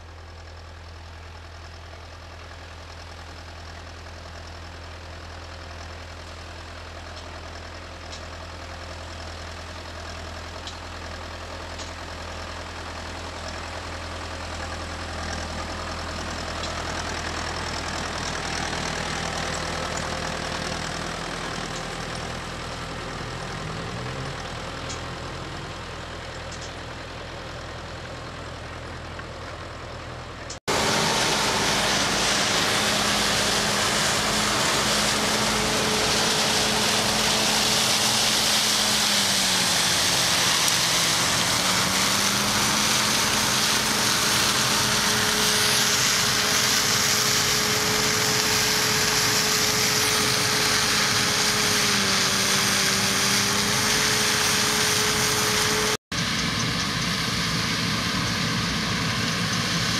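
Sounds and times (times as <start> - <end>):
combine harvester engine drone: 0.0 - 59.9
tractor engine running: 0.0 - 59.9
hiss of threshing: 30.7 - 56.0.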